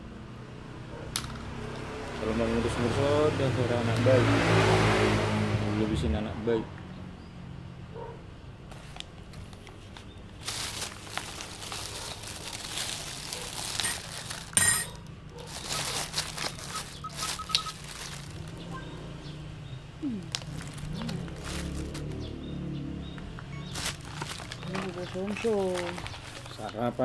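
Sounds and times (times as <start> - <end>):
bags rustling and crinkling: 8.7 - 18.8, 20.0 - 22.3, 23.6 - 27.0.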